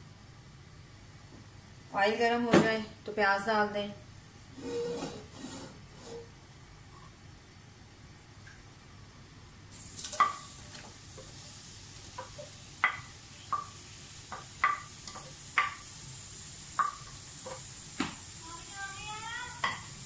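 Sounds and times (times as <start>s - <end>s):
onions sizzling in oil: 9.7s - 20.0s
spoon knocking against pot: 12.2s - 13.7s, 14.3s - 15.8s, 16.8s - 17.6s, 19.6s - 19.9s.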